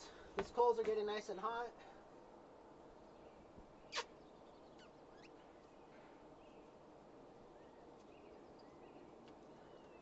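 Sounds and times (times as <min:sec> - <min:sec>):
faint bird chirps: 0:02.9 - 0:06.8
sharp high squeak-like call: 0:03.9 - 0:04.2, 0:04.8 - 0:05.4.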